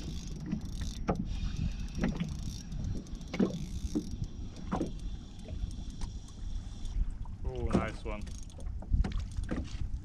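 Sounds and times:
fishing reel whirring: 0.0s - 7.0s
water slapping boat hull: 0.0s - 10.0s.

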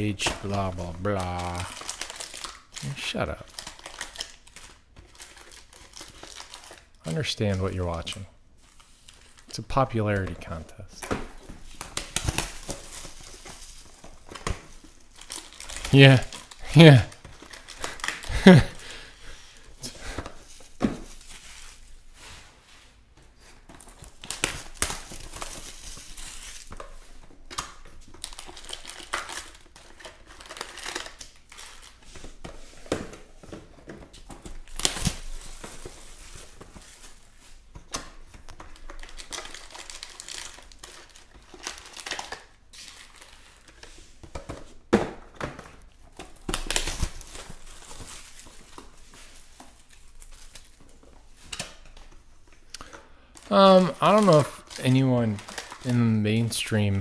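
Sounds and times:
foil packs crinkling: 0.0s - 10.6s, 11.4s - 22.2s, 23.5s - 44.8s, 45.7s - 57.0s
plastic wrap tearing: 0.2s - 7.0s, 11.6s - 18.9s, 23.8s - 32.4s, 34.5s - 37.2s, 38.0s - 43.8s, 45.8s - 52.0s, 52.6s - 57.0s.

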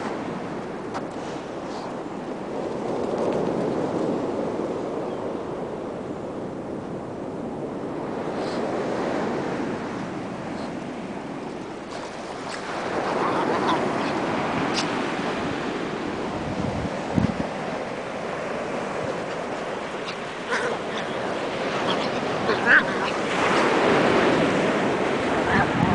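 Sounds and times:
ocean surf washing: 0.0s - 25.9s.

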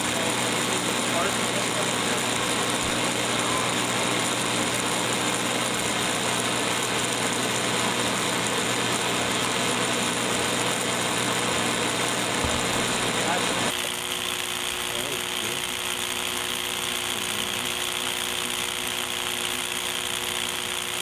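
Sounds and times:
plasma torch hissing: 12.3s - 20.9s.

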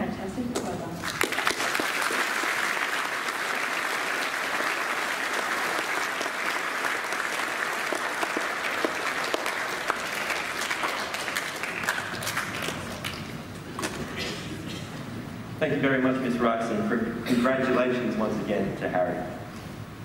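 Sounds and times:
audience applauding: 1.0s - 13.5s.

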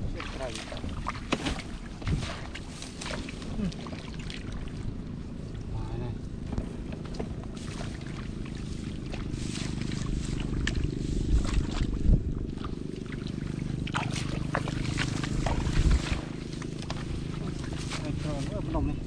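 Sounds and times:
hands splashing in muddy water: 0.0s - 4.8s, 7.5s - 18.2s
steady low rumble: 0.0s - 19.0s
rustling rice stalks: 7.5s - 11.8s, 14.1s - 18.8s.

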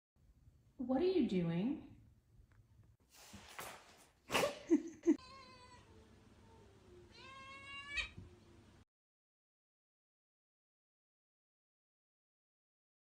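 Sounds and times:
cat meowing: 5.2s - 8.3s.

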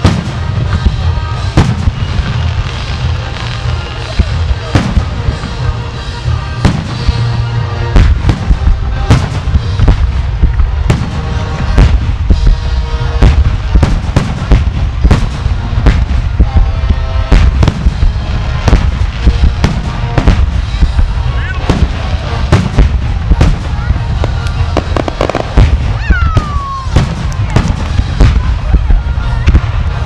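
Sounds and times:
deep rumble: 0.0s - 30.0s
fireworks booming and cracking: 0.0s - 30.0s.

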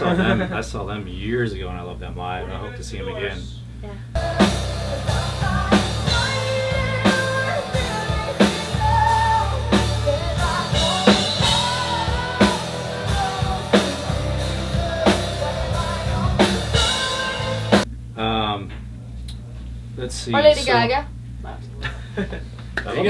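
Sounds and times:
heavy drum hits: 4.2s - 17.8s
rock music with singing: 4.2s - 17.9s.

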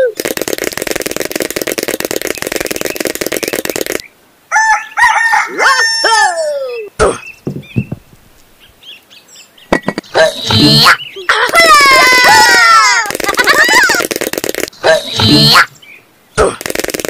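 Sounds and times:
fast fluttering patter: 0.0s - 4.0s, 11.4s - 15.6s, 16.6s - 17.0s.

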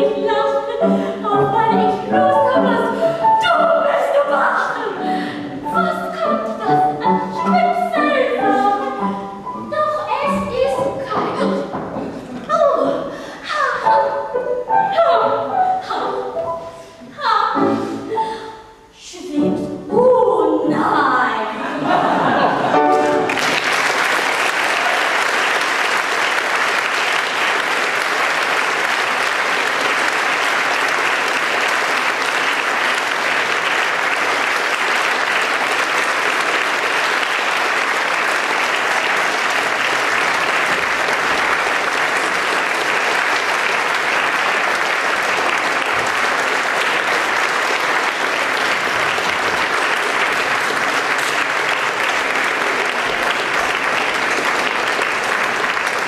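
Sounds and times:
audience applauding: 21.8s - 56.0s.

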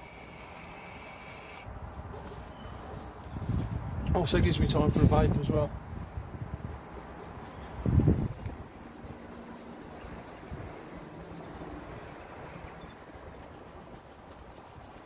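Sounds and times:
low rush of air on microphone: 1.6s - 15.0s.

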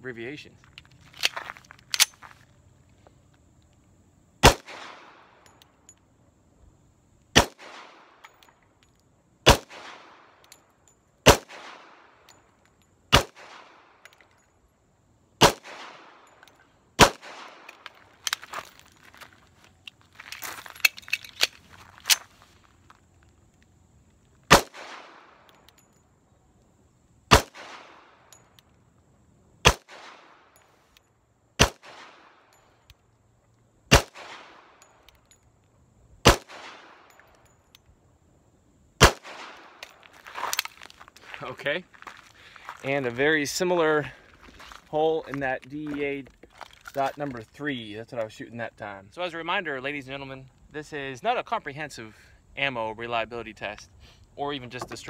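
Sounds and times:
magazine change clicks: 0.7s - 2.2s, 19.9s - 22.3s
pistol shots with echo: 4.4s - 5.4s, 7.4s - 8.2s, 9.4s - 10.4s, 11.2s - 12.2s, 13.1s - 14.0s, 15.4s - 16.2s, 17.0s - 17.7s, 24.5s - 25.4s, 27.3s - 28.2s, 29.6s - 30.5s, 31.6s - 32.5s, 33.9s - 34.8s, 36.2s - 37.2s, 39.0s - 39.8s.

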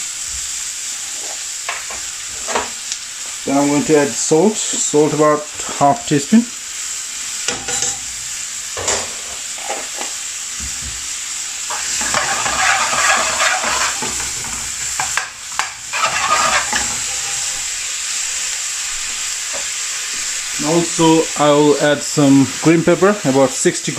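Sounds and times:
onion and garlic sizzling in oil: 0.0s - 23.9s
metal spoon scraping a pan: 7.5s - 8.0s, 11.7s - 17.9s.

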